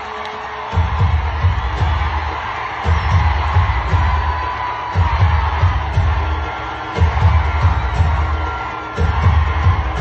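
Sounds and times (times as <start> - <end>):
crowd cheering and shouting: 0.0 - 10.0
loud dance music with pounding bass: 0.4 - 10.0.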